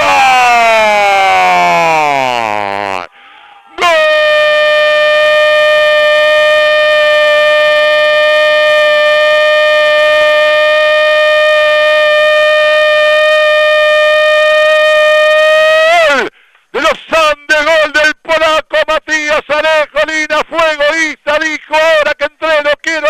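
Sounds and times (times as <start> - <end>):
commentator shouting goal cry: 3.7 - 9.6, 14.2 - 23.0.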